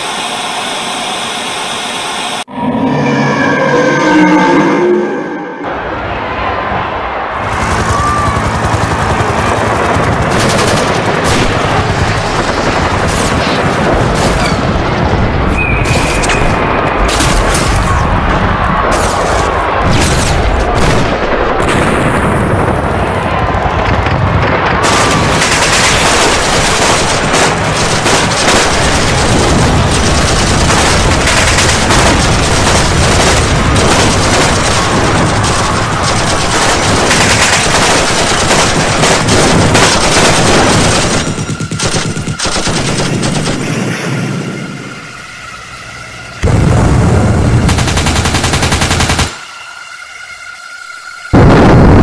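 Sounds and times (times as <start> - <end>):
machine-gun fire: 7.5 - 15.2, 18.8 - 43.8, 47.6 - 49.4.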